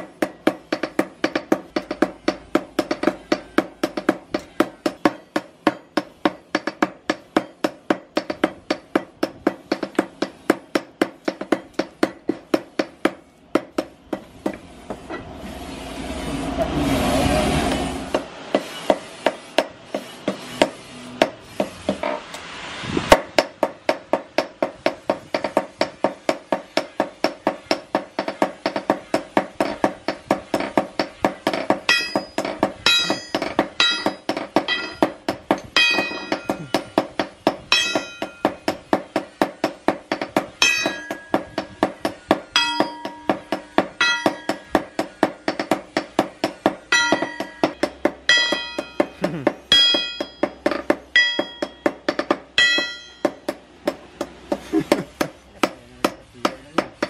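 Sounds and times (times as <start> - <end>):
rushing noise: 14.7 - 24.7
hammer blows ringing on anvil: 23.4 - 54.3.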